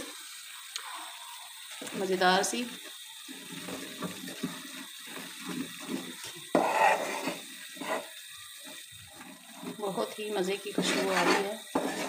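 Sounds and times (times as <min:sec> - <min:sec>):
flour paste frying in oil: 0:00.0 - 0:12.0
metal spoon scraping a pan: 0:05.4 - 0:08.2, 0:10.6 - 0:12.0.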